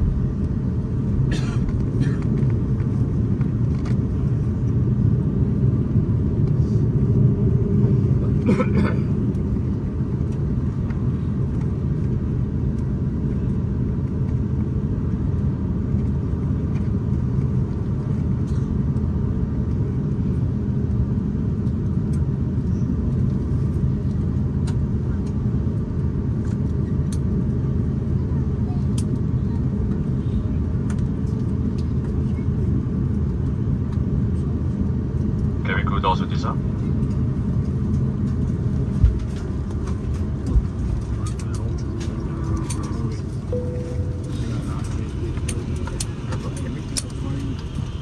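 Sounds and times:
airliner cabin rumble: 0:00.0 - 0:48.0
short faint tone: 0:43.5 - 0:45.7.

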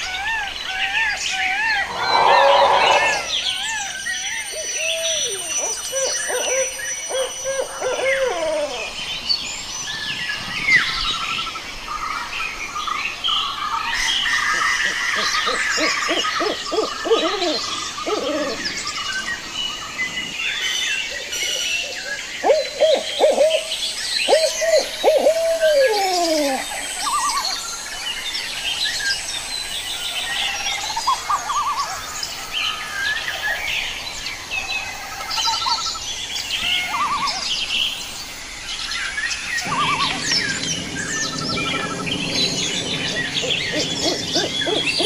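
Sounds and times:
songbirds chirping: 0:00.0 - 0:45.0
owl hooting: 0:14.8 - 0:18.8, 0:22.4 - 0:23.7, 0:43.4 - 0:45.0.

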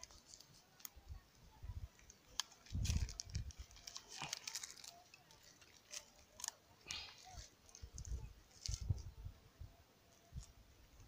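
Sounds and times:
plastic tape crinkling: 0:00.0 - 0:01.0, 0:01.9 - 0:09.1.

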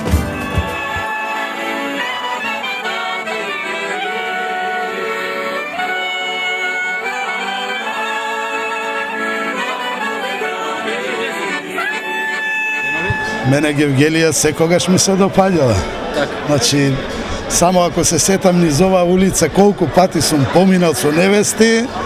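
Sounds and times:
clarinet playing folk melody: 0:00.0 - 0:17.6.

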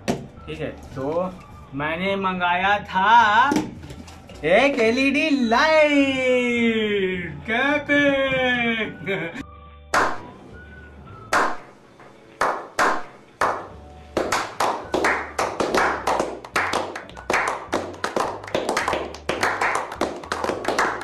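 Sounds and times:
men slow-clapping: 0:12.4 - 0:21.0.

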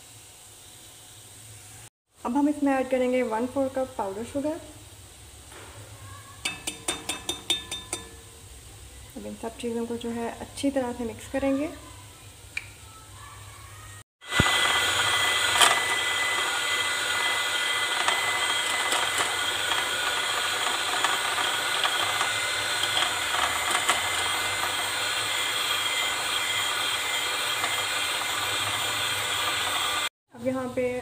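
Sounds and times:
electric hand mixer whining: 0:14.2 - 0:30.1.

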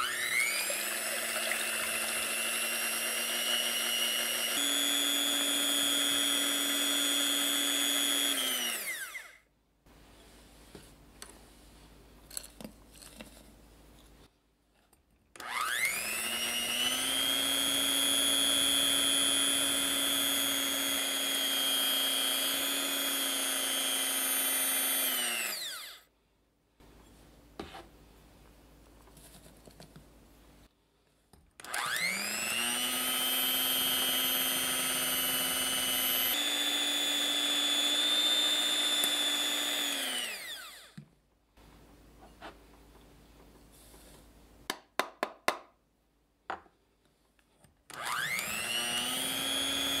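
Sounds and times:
electric hand mixer whining: 0:00.0 - 0:09.4, 0:15.4 - 0:26.0, 0:31.6 - 0:41.0, 0:47.9 - 0:50.0.

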